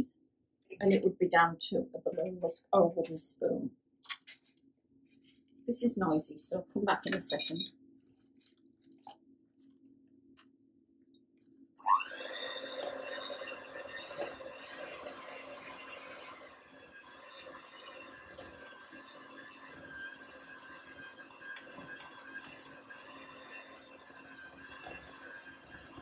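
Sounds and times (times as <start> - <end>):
electric hand mixer whining: 11.8 - 26.0.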